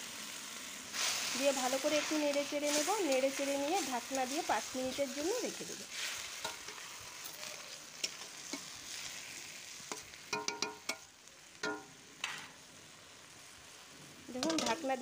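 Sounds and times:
broth simmering hiss: 0:00.0 - 0:15.0
spatula knocking and scraping pan: 0:09.9 - 0:11.0, 0:14.4 - 0:14.8.

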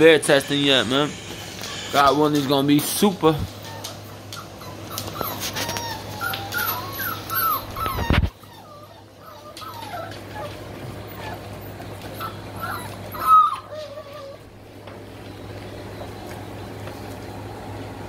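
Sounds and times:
puppies whining and yelping: 0:00.8 - 0:14.8.

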